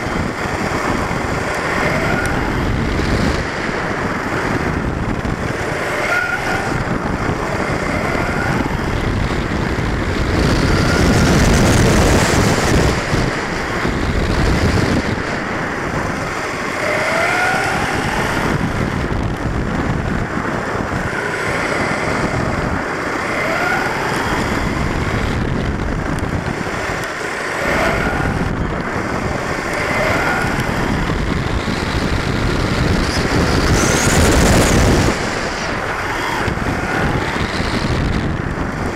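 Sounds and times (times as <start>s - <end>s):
tyre and wind noise: 0.0s - 38.9s
electric motor whine: 28.3s - 38.9s.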